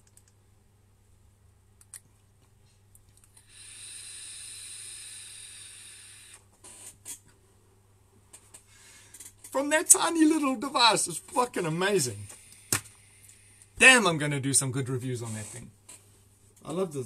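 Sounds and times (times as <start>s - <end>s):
hiss of vapour through coil: 3.3s - 7.0s.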